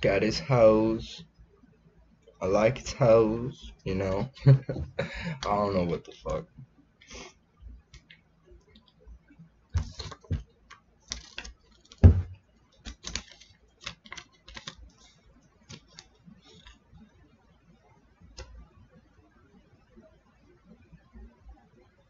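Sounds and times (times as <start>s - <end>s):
hands handling a small speaker: 9.8s - 15.1s
loud thump: 12.0s - 12.4s.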